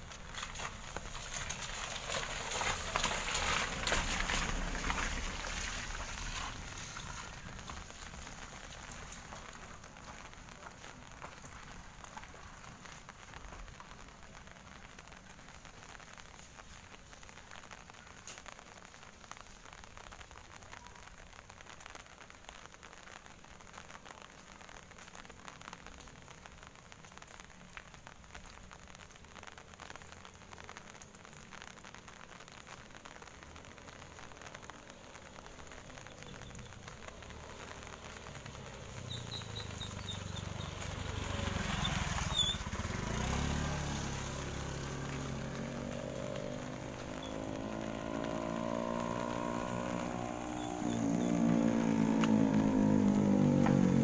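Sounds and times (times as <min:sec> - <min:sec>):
engine approaching: 0:00.0 - 0:10.3, 0:36.0 - 0:54.0
light rain on wet road: 0:00.0 - 0:54.0.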